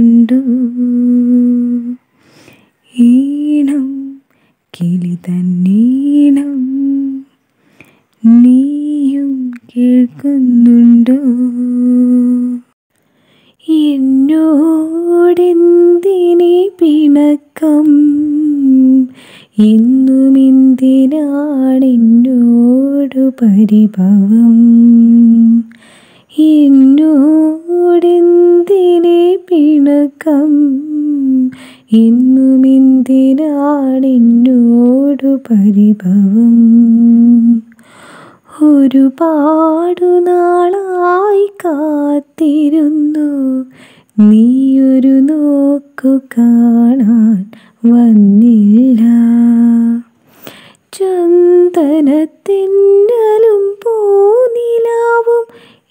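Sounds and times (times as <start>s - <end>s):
solo voice singing: 8.2s - 12.8s.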